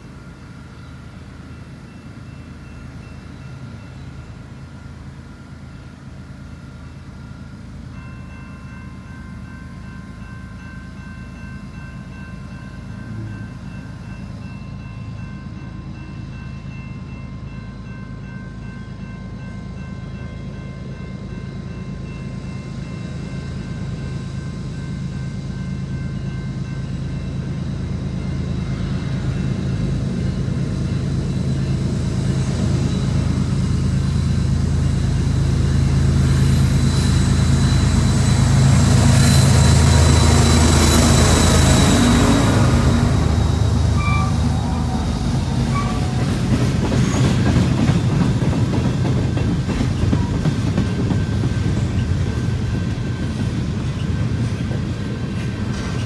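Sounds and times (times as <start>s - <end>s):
diesel locomotive engine drone: 0.0s - 56.0s.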